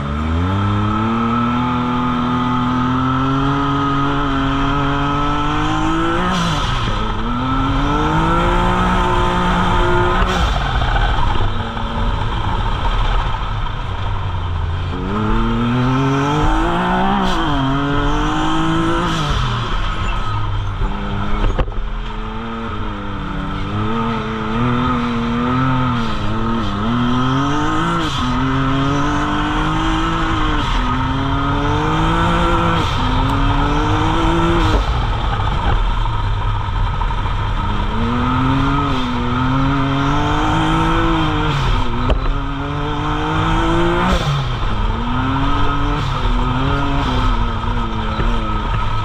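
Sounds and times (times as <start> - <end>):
engine revving under throttle: 0.0 - 12.6, 14.9 - 19.9, 22.2 - 35.8, 37.4 - 49.0.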